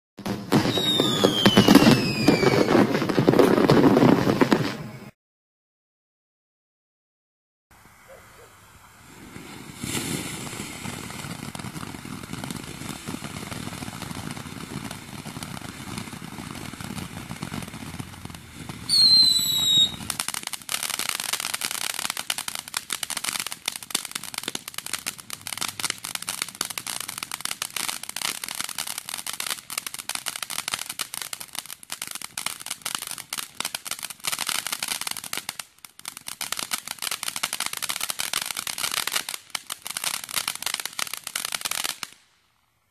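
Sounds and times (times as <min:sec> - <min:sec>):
firework fountain hissing: 0:00.2 - 0:05.1, 0:07.7 - 0:42.2
firework crackling: 0:00.2 - 0:05.2, 0:07.8 - 0:42.9
whistle falling in pitch: 0:00.7 - 0:02.7, 0:18.9 - 0:20.1.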